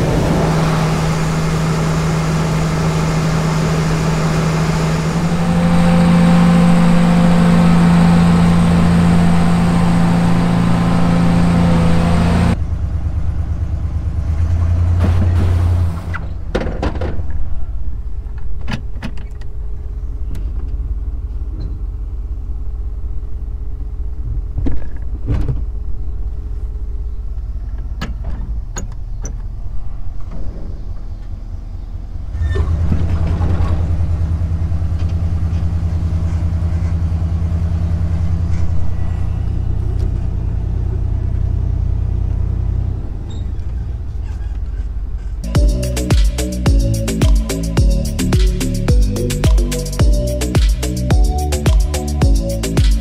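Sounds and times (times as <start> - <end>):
pickup truck engine running: 0.0 - 53.0
knocks and rattles: 16.2 - 17.6.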